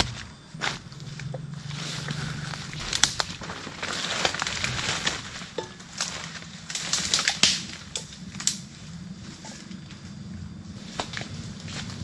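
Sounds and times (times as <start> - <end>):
leaves and stems rustling: 0.0 - 12.0
twigs snapping underfoot: 2.5 - 8.7.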